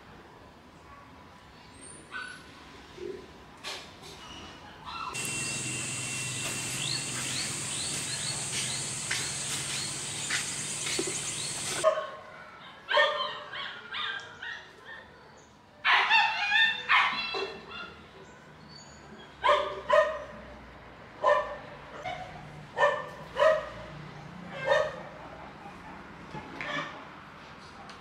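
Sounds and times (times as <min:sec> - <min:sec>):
machine hum with high hiss: 0:05.2 - 0:11.8
dog barking: 0:11.5 - 0:12.2, 0:12.9 - 0:14.2, 0:19.4 - 0:20.3, 0:21.2 - 0:23.9, 0:24.5 - 0:26.0.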